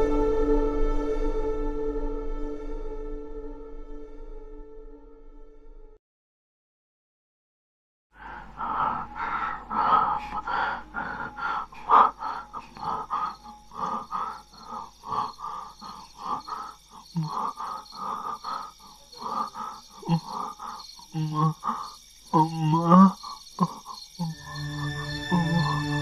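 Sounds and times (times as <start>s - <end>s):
crickets chirring: 8.2s - 26.0s
man gasping for breath: 8.2s - 26.0s
man groaning: 8.6s - 26.0s.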